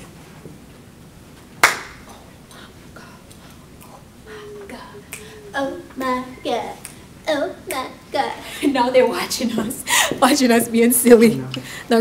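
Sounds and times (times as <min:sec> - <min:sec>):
sharp hand clap: 0:01.6 - 0:02.0.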